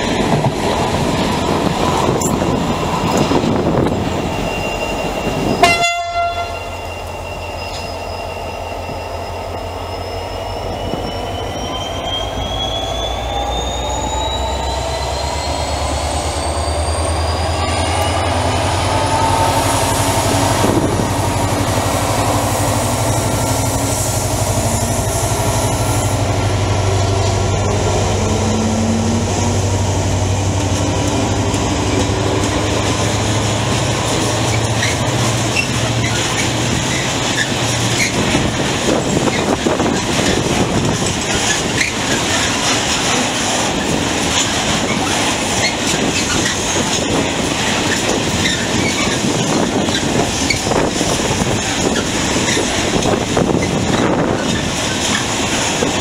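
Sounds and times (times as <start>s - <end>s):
diesel locomotive engine drone: 0.0s - 56.0s
train rolling past: 0.0s - 56.0s
rising engine whine: 6.5s - 45.9s
freight wagons rolling by: 30.9s - 56.0s.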